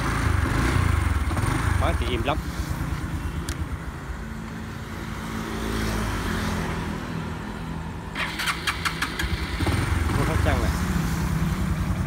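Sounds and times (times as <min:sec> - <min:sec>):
motorbike engine idling: 0:00.0 - 0:04.0, 0:08.2 - 0:12.0.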